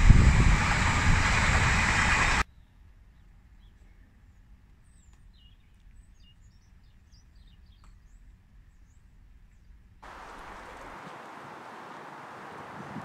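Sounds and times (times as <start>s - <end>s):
steady rushing noise: 0.0s - 2.4s, 10.0s - 13.0s.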